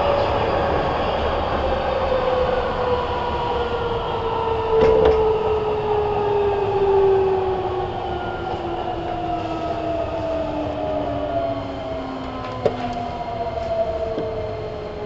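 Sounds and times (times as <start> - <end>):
train running rumble: 4.5 - 6.9.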